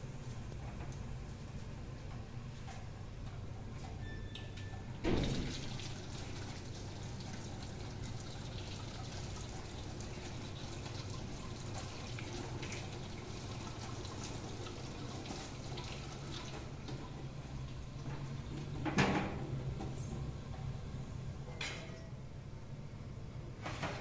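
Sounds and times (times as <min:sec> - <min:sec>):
water running: 0:05.1 - 0:17.8.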